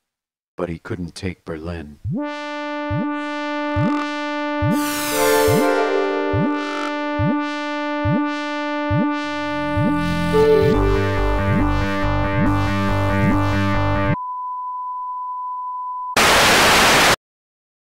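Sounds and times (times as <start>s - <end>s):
electronic synthesizer music: 2.0s - 14.2s
steady test tone: 2.0s - 14.2s
white-noise static burst: 16.2s - 17.2s.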